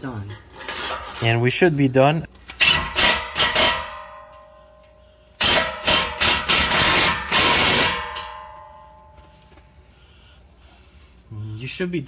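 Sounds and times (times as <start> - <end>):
impact wrench hammering: 2.6 - 9.3
metallic ringing: 3.2 - 6.2, 7.0 - 9.9.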